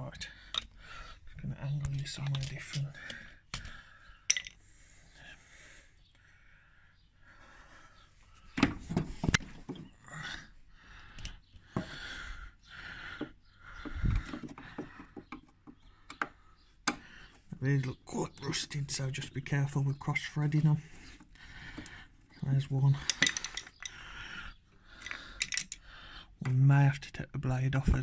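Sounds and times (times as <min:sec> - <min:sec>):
handling knocks and clicks: 0:01.8 - 0:03.7, 0:04.3 - 0:04.6, 0:08.6 - 0:09.9, 0:13.2 - 0:17.0, 0:23.0 - 0:24.0, 0:25.0 - 0:25.8.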